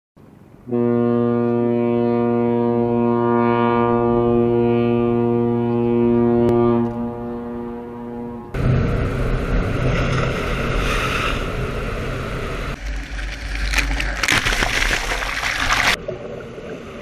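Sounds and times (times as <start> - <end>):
ship's horn long low blast: 0.6 - 12.8.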